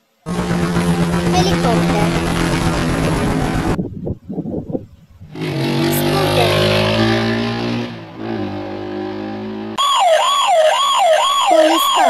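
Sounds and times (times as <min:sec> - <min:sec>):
motor scooter engine: 0:00.2 - 0:03.8, 0:05.3 - 0:07.4
helicopter rotor and engine: 0:00.3 - 0:03.8.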